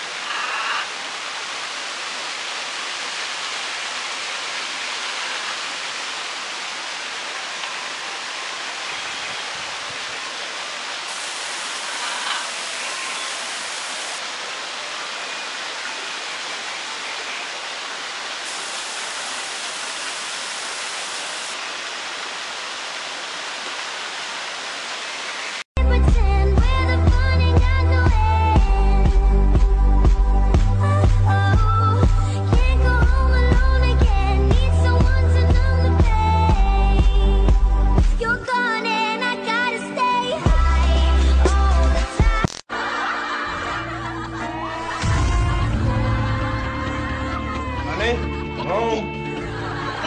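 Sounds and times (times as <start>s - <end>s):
steady rushing hiss: 0.0s - 25.6s.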